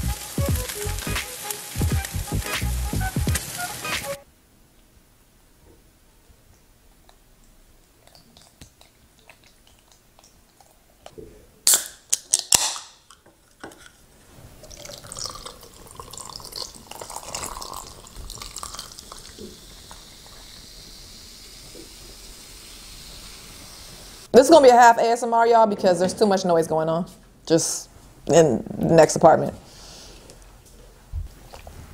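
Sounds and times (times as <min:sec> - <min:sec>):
soda fizzing over ice: 0:00.0 - 0:04.1, 0:14.6 - 0:24.3
sauce dripping onto pasta: 0:14.7 - 0:20.6.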